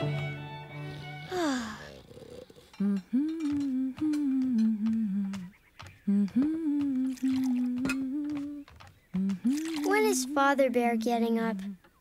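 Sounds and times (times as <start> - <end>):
woman humming a slow tune: 1.2 - 9.8.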